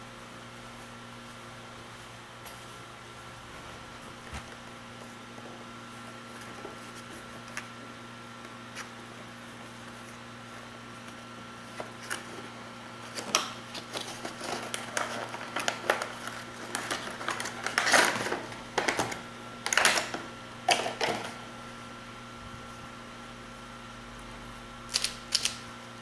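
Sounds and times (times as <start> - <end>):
faint steady hum: 0.0 - 26.0
plastic wrapping crinkling: 13.0 - 20.0.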